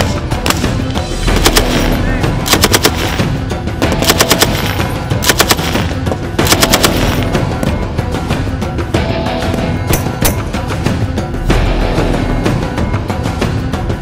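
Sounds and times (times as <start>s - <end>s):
rifle bursts: 1.3s - 3.3s, 3.9s - 7.3s.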